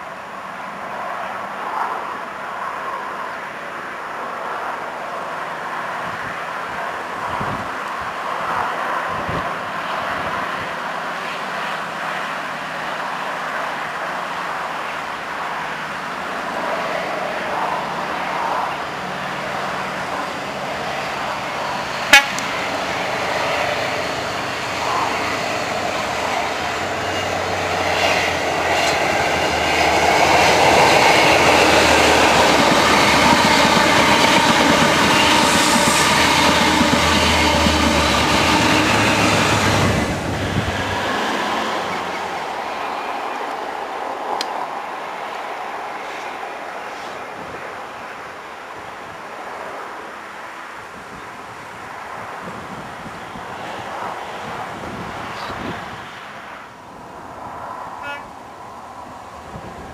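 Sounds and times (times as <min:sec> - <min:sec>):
diesel train engine passing: 0:04.2 - 0:48.2.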